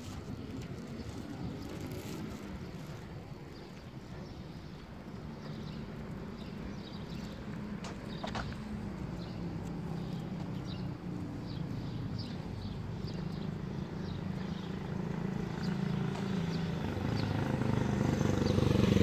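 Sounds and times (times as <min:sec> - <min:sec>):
footsteps on pavement: 0:00.0 - 0:18.7.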